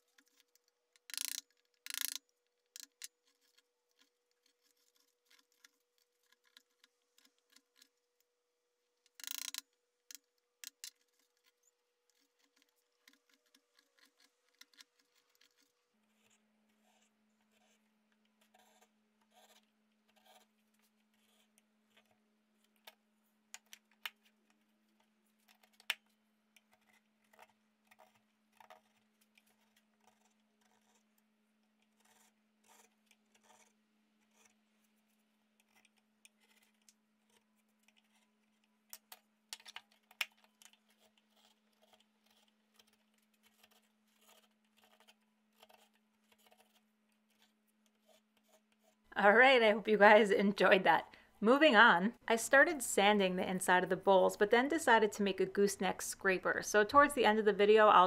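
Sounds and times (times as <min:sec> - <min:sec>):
carving gouge scraping wood: 0:02.8 - 0:08.0, 0:10.7 - 0:22.8, 0:26.6 - 0:38.7, 0:40.0 - 0:49.1.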